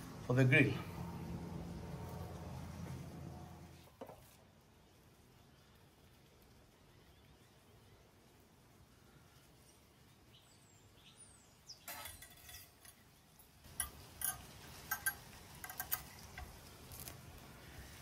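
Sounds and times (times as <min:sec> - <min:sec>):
wire lid clinking and rattling: 0:11.8 - 0:17.2.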